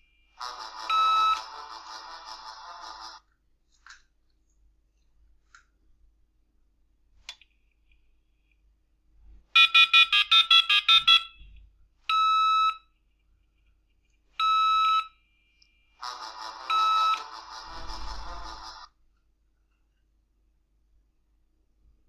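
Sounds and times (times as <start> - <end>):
fast electronic telephone trill: 0.4 - 3.2, 16.0 - 18.9
short steady beeps: 9.6 - 12.9.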